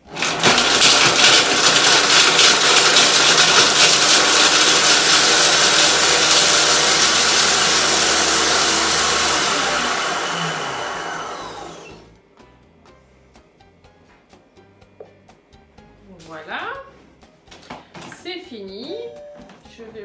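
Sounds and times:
food processor whirring: 0.0 - 12.2.

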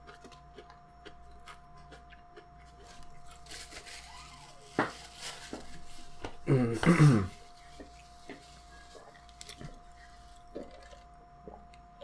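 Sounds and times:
faint chewing clicks: 0.0 - 3.3, 7.6 - 12.0.

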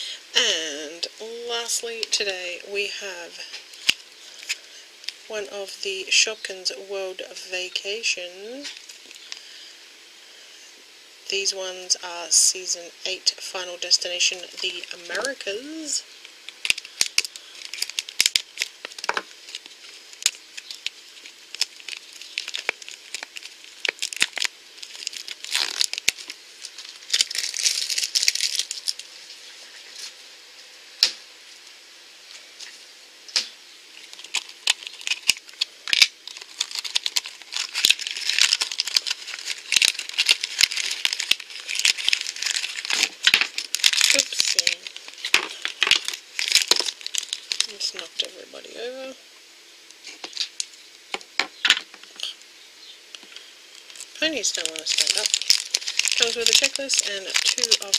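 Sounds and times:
shrink-wrap crinkling and tearing: 3.4 - 5.3, 8.6 - 9.6, 13.8 - 30.1, 34.0 - 48.3, 50.0 - 50.8, 53.2 - 57.9.

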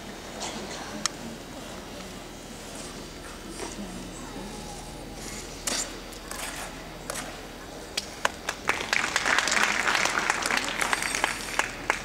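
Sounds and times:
audience applause: 8.2 - 12.0.

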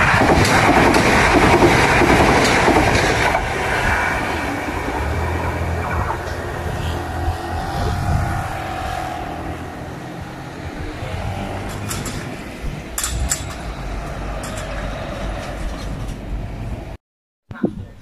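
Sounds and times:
sharp clacks: 0.0 - 4.3, 11.5 - 16.2
truck engine and tyre noise: 0.0 - 17.0.

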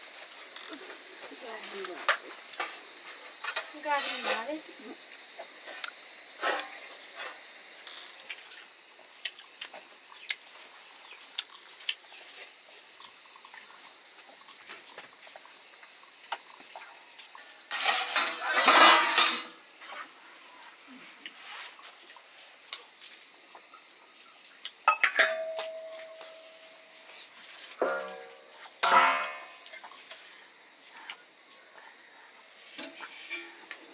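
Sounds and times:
metal plates clinking: 17.7 - 19.6, 24.9 - 26.7, 27.8 - 29.7, 32.8 - 33.7
plate ringing: 24.9 - 26.8, 27.8 - 29.6.

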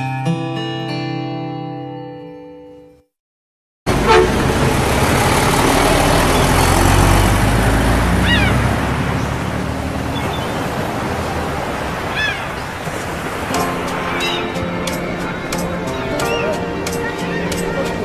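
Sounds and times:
bus engine rumbling past: 3.9 - 18.0
road noise: 3.9 - 18.0
surf: 3.9 - 18.0
wind: 3.9 - 18.0
high chirps: 13.6 - 17.7.

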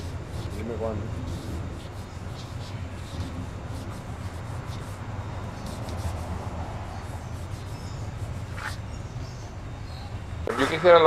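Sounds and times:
drawing stick scratching paper: 0.0 - 8.8
steady low hum: 0.0 - 11.0.

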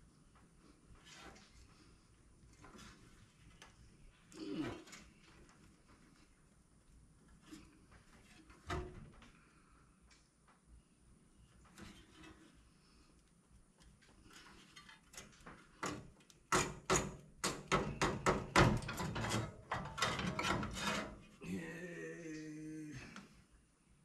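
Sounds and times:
sharp knocks and clicks of tools: 15.8 - 21.1
man humming: 21.4 - 23.4.

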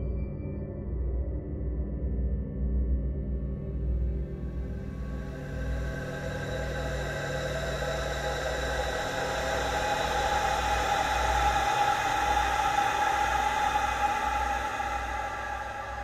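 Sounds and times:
dark ambient drone: 1.2 - 16.0
rumbling hum: 4.2 - 16.0
sustained tones: 4.8 - 16.0.

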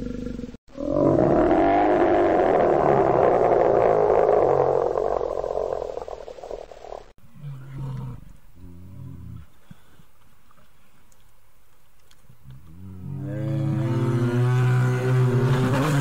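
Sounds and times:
bear roaring: 0.0 - 9.4.

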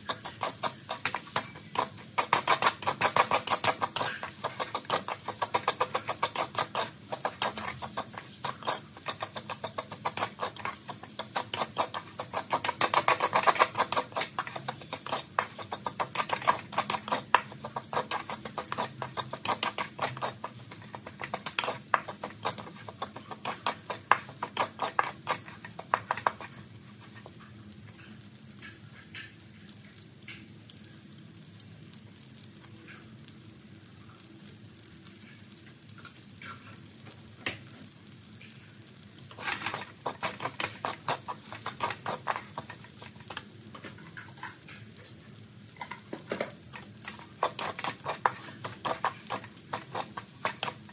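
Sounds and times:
spatula scraping a wok: 0.0 - 29.4, 37.9 - 50.9
food frying hiss: 0.0 - 50.9.

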